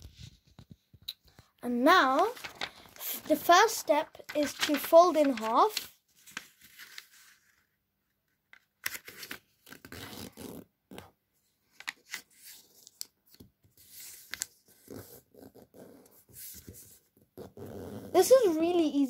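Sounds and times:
paper rustling and crinkling: 0.0s - 7.7s, 8.6s - 10.3s, 11.7s - 15.2s
paper sharp crackles: 1.7s - 7.6s.

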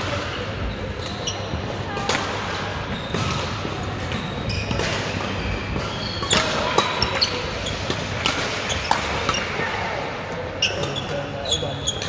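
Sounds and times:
shoes squeaking on sports floor: 0.3s - 1.8s, 2.8s - 9.4s, 10.5s - 12.0s
racket striking shuttlecock: 3.1s - 9.5s.

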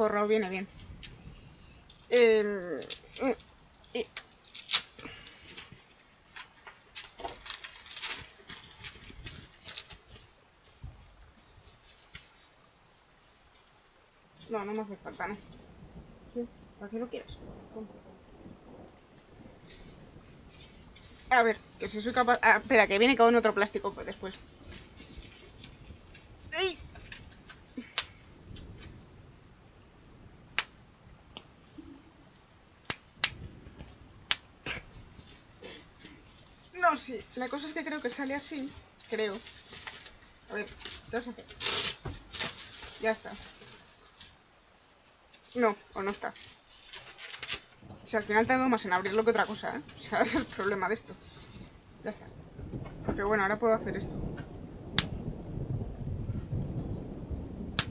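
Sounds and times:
plastic shrink-wrap crinkling: 1.8s - 12.7s, 19.6s - 29.0s, 32.8s - 44.4s, 45.1s - 53.5s.

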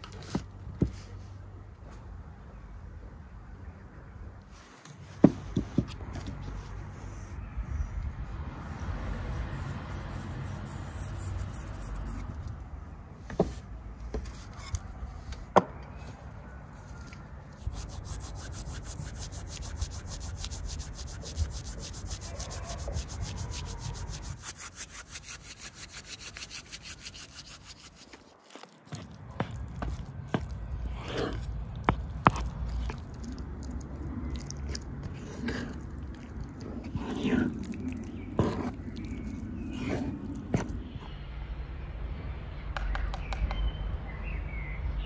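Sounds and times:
dry herbs rubbed between palms: 16.0s - 40.8s.

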